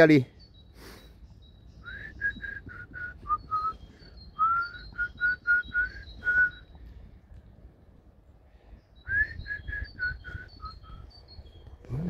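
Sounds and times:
person whistling a tune: 1.8s - 6.8s, 9.0s - 11.1s.

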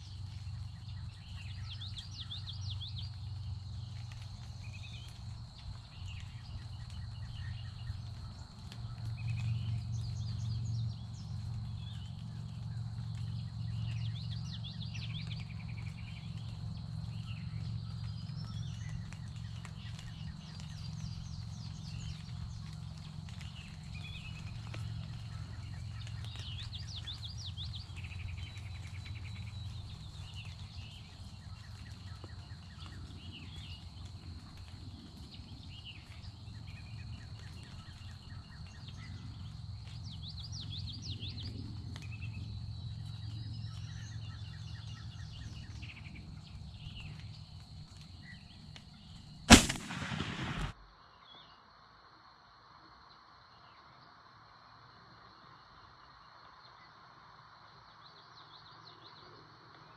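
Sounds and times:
birds singing: 0.0s - 51.6s
steady low rumble: 49.5s - 50.8s.

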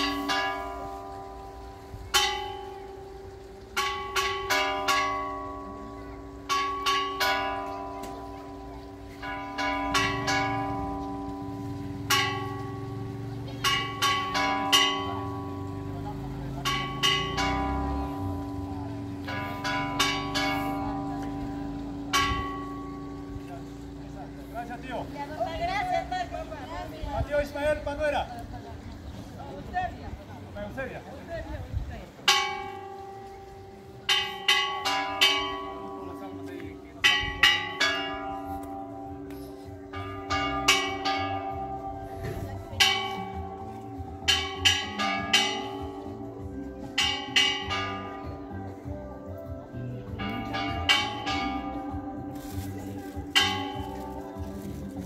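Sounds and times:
church bells ringing: 0.0s - 26.6s, 32.2s - 55.0s.

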